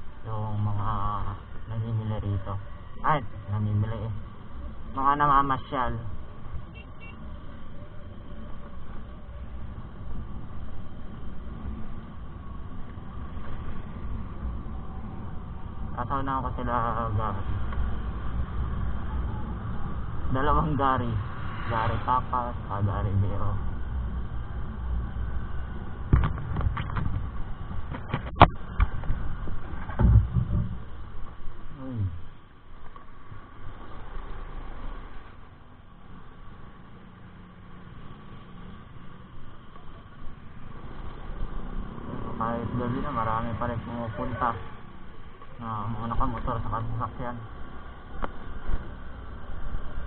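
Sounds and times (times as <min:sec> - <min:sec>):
scooter road rumble: 0:00.0 - 0:50.0
scooter engine humming: 0:17.5 - 0:20.3
wind rumble on microphone: 0:23.2 - 0:32.3.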